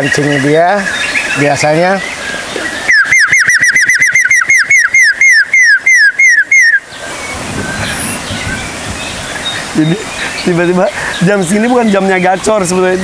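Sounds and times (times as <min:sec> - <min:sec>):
man whistling bird call: 0:02.9 - 0:06.9.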